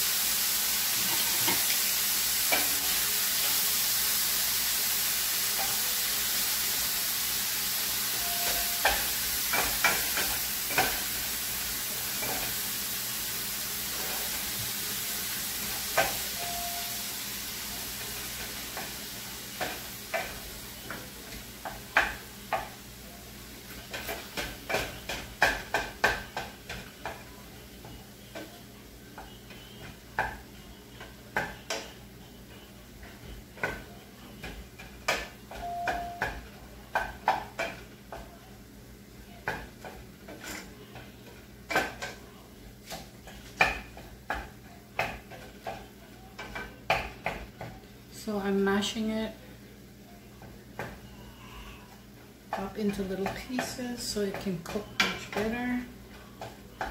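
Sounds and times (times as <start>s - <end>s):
meat sizzling in a skillet: 0.0s - 27.5s.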